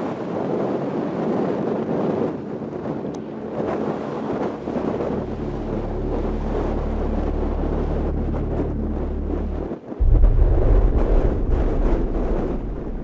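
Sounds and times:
wind-like rushing texture: 2.5s - 13.0s
deep bass drone: 4.5s - 13.0s.

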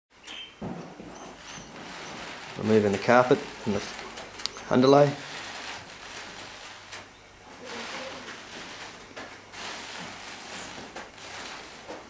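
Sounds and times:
carpet rustling and scraping: 0.6s - 12.0s.

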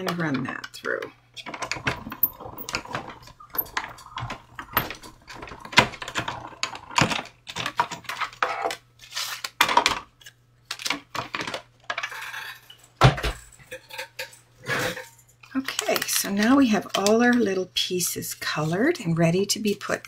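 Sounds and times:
plastic plates clattering: 1.4s - 8.8s.

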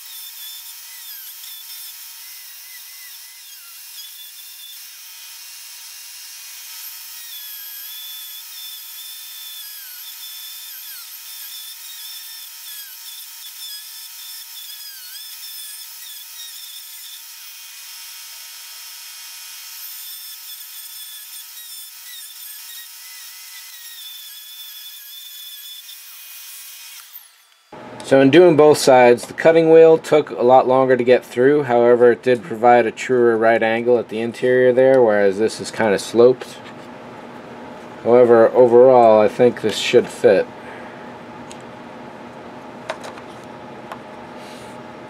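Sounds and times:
rotary tool whine cutting wood: 0.0s - 27.8s.

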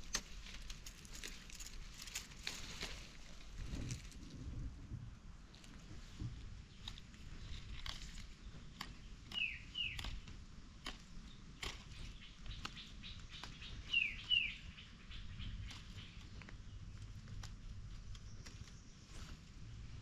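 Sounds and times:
sharp crackles and snaps: 6.7s - 14.6s, 15.2s - 19.3s
bird chirping: 8.4s - 10.2s, 11.1s - 19.4s.

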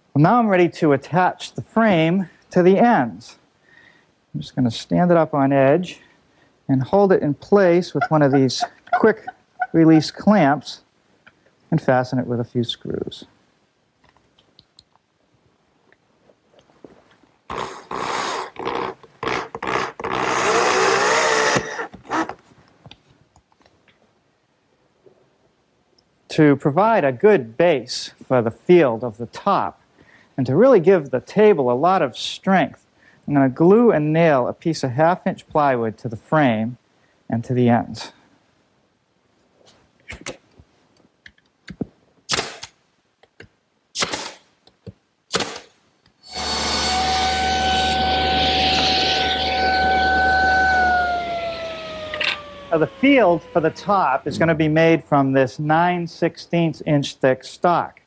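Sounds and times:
electric drill driving screw: 17.5s - 22.4s, 46.2s - 54.0s
nail gun shots: 42.3s - 42.8s, 44.0s - 44.5s, 45.3s - 45.8s
steady machine noise: 46.3s - 54.7s.

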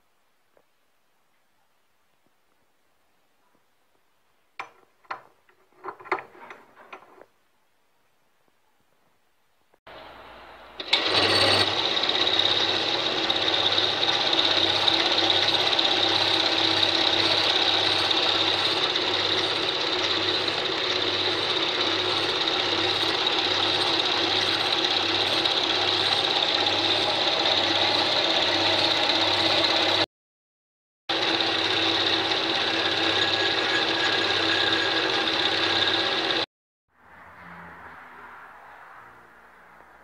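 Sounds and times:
metal lathe drilling metal: 10.8s - 30.0s, 31.1s - 36.5s.

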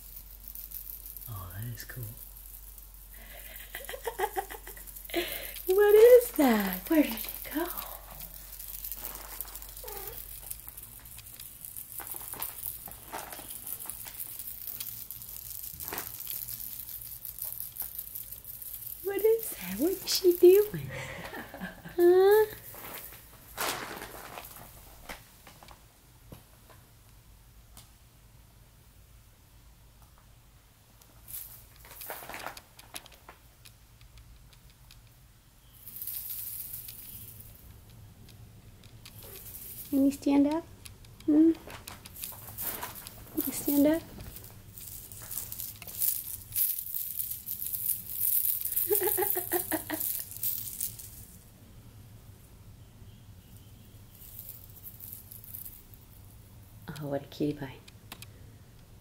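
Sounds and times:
faint rustling: 0.0s - 26.8s, 31.1s - 51.4s.

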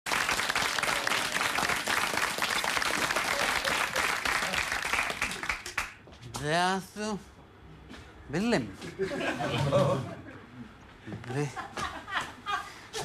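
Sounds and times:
audience applauding: 0.1s - 6.0s.

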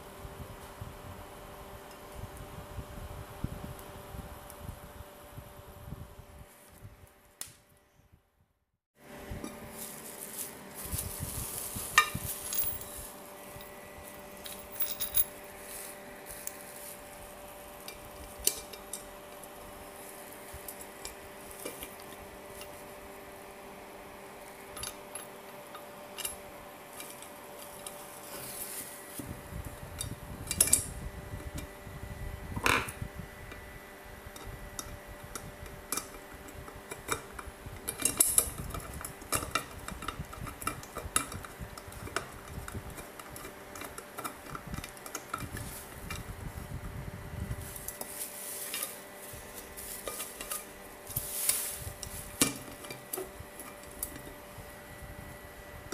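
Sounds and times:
plastic wrap crinkling: 9.7s - 13.2s.

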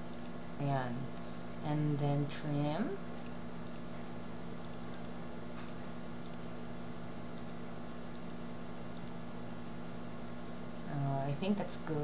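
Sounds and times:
steady low hum: 0.0s - 12.0s
computer mouse clicking: 0.1s - 0.4s, 3.2s - 3.9s, 4.6s - 6.5s, 7.4s - 9.2s.

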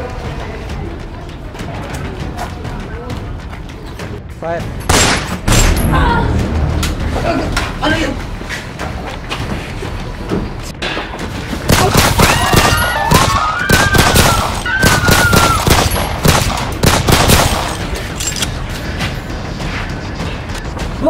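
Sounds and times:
rapid gunshots: 4.9s - 5.4s, 11.7s - 18.0s.

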